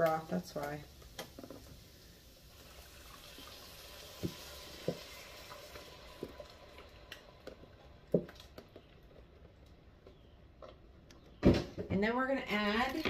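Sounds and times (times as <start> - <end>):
faint pouring hiss: 0.0 - 8.6
broth plopping into pot: 3.2 - 8.4.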